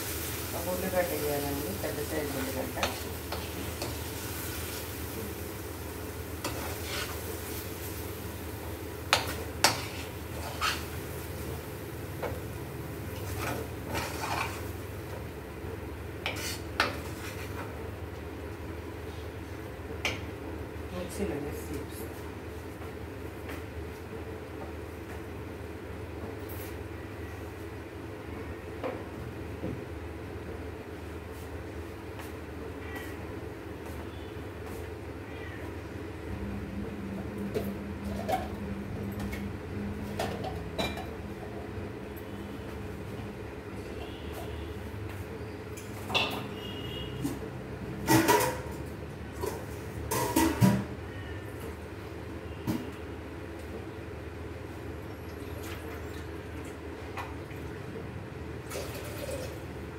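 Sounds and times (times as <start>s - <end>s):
pan frying low hum: 0.0s - 26.8s
metal spatula scraping pan: 6.4s - 7.3s, 9.1s - 11.0s, 13.2s - 14.7s, 16.3s - 17.5s.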